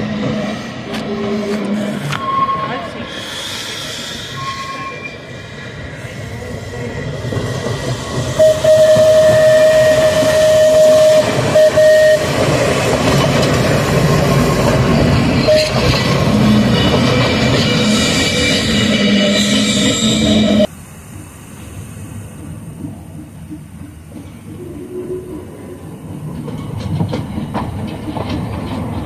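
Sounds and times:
tram warning horn: 0.0s - 3.1s, 4.4s - 5.3s, 8.2s - 20.7s
wheels rumbling on rails: 0.0s - 29.0s.

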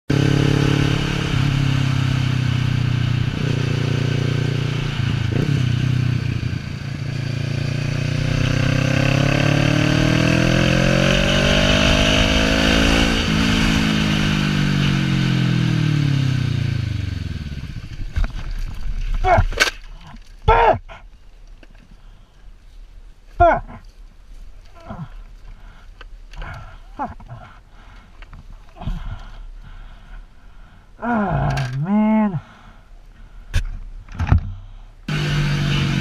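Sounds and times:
motorcycle engine accelerating: 0.1s - 19.1s, 35.1s - 36.0s.

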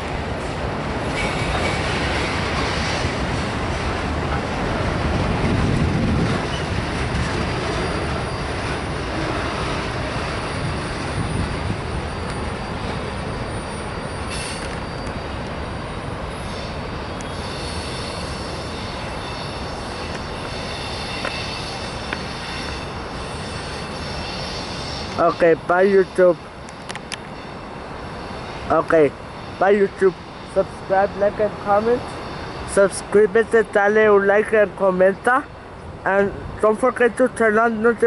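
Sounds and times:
train wheels rumbling on rails: 0.0s - 38.0s
high squeal of wheels: 6.4s - 32.9s.

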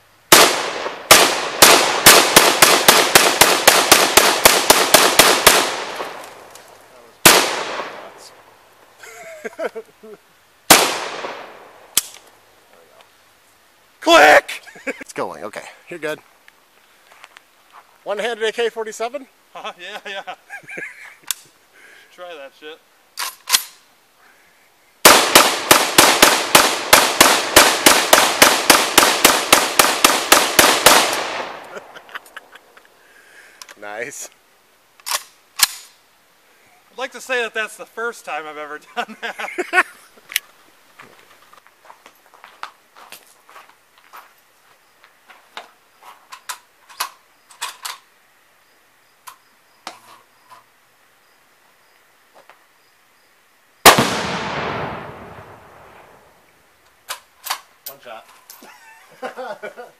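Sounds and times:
rifle gunshots with echo: 0.3s - 6.5s, 7.2s - 8.3s, 10.7s - 11.8s, 25.0s - 32.0s, 53.8s - 56.2s.

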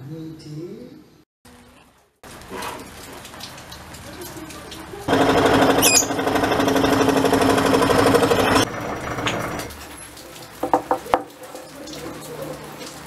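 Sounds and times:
scroll saw cutting wood: 5.1s - 8.7s
high squeal: 5.8s - 6.2s
sharp knocks: 10.6s - 11.3s.

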